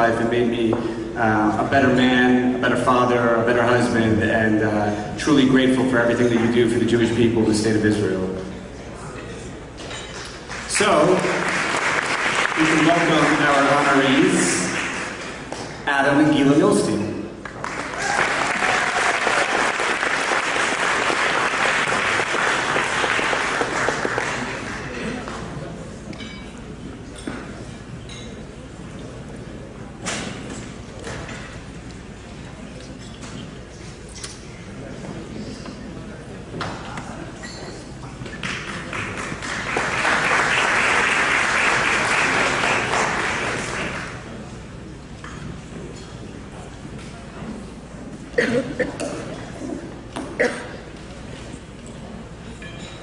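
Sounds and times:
audience applauding: 0:10.5 - 0:15.3, 0:17.4 - 0:25.0, 0:38.4 - 0:44.3.

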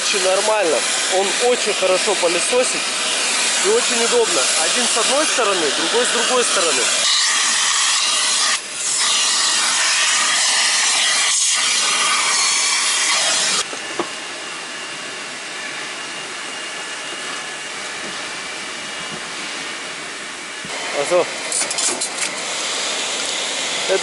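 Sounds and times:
vacuum nozzle sucking: 0:00.0 - 0:13.7.

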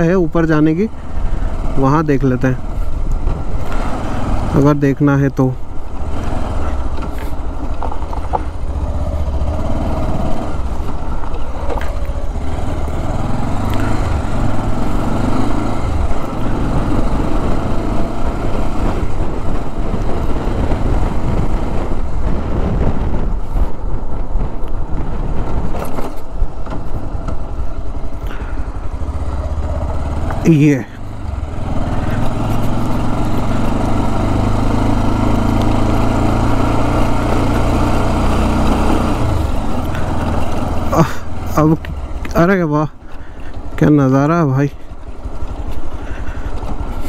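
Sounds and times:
motorcycle engine at low speed: 0:00.0 - 0:47.0
wind rumble on microphone: 0:05.6 - 0:30.4.

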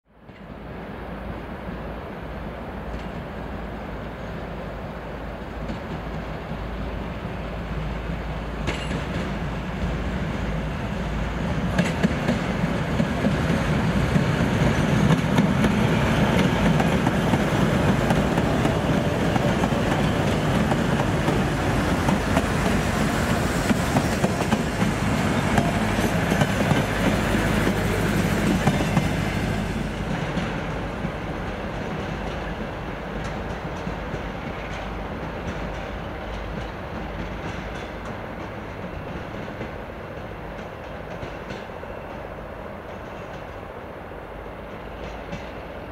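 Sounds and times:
diesel locomotive engines running: 0:05.1 - 0:39.4.

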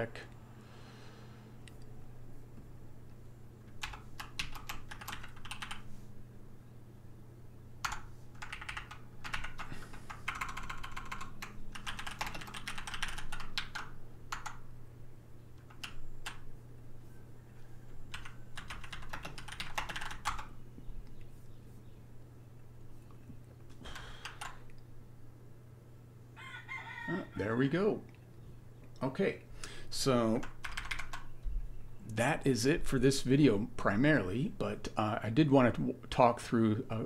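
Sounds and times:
typing on a computer keyboard: 0:03.8 - 0:05.9, 0:07.8 - 0:14.7, 0:15.6 - 0:16.4, 0:18.1 - 0:20.5, 0:23.9 - 0:24.7, 0:30.4 - 0:31.3.

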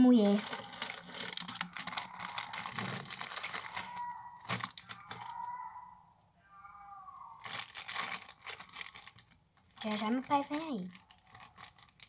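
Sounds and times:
plastic wrapping crinkling: 0:00.0 - 0:05.6, 0:07.4 - 0:12.0
cat yowling: 0:01.6 - 0:07.7.

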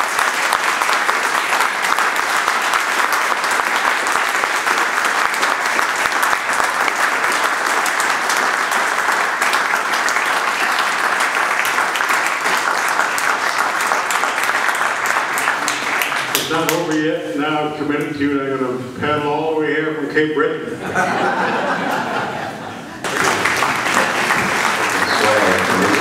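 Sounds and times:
audience applauding: 0:00.0 - 0:17.0, 0:22.9 - 0:26.0.

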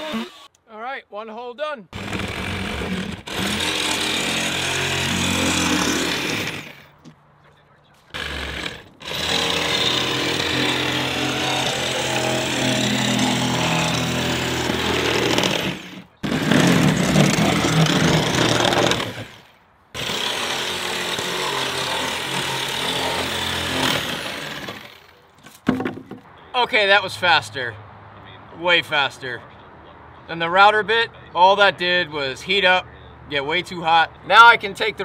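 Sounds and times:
reciprocating saw cutting wood: 0:00.0 - 0:00.5, 0:02.0 - 0:07.0, 0:08.1 - 0:25.2.

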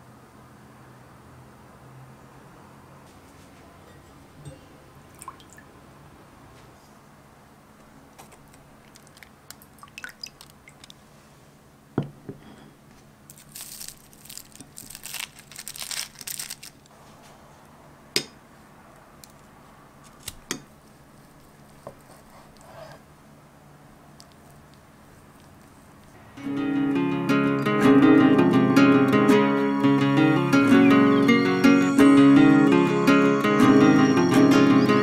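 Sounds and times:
foil and plastic wrap crinkling: 0:08.2 - 0:09.6, 0:13.3 - 0:16.9.

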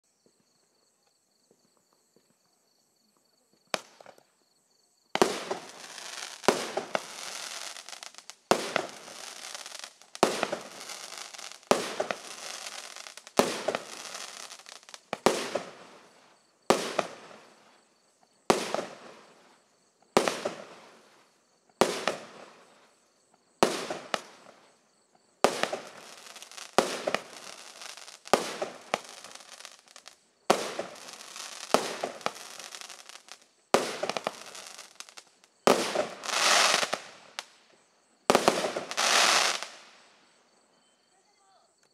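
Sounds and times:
firework shots with hiss: 0:05.2 - 0:17.8, 0:18.4 - 0:23.0, 0:23.6 - 0:24.8, 0:25.4 - 0:40.2.

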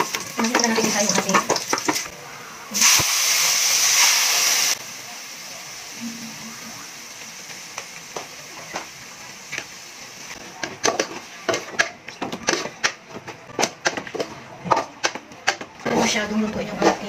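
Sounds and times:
meat sizzling in a pot: 0:00.0 - 0:02.1, 0:02.7 - 0:13.0.

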